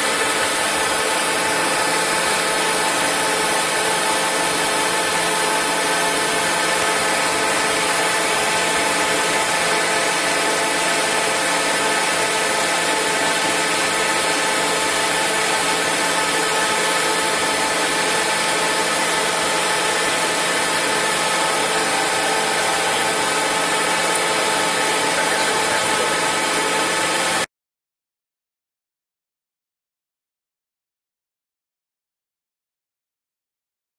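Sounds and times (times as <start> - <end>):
lathe cutting metal: 0.0 - 27.5
steady machine whining tones: 0.0 - 27.5.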